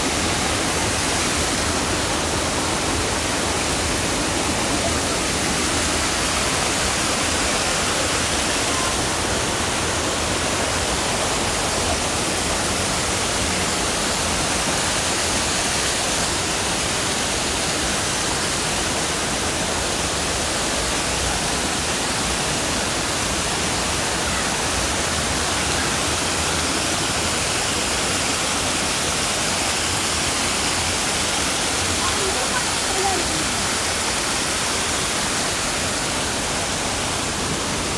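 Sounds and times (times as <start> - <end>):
waterfall rushing: 0.0 - 37.9.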